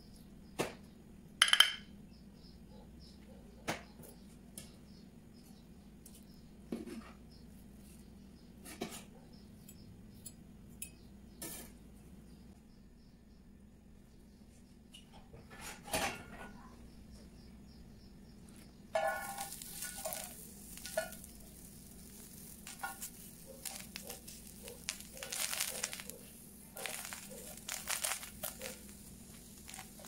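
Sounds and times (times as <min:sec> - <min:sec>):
metal utensils clinking: 0:19.0 - 0:21.6.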